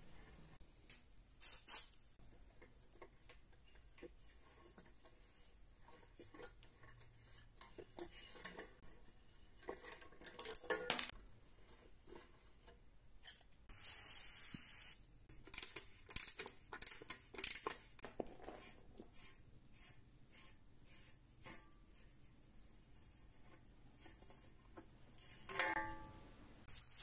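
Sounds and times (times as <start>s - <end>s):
ratchet wrench clicking: 15.5s - 17.8s.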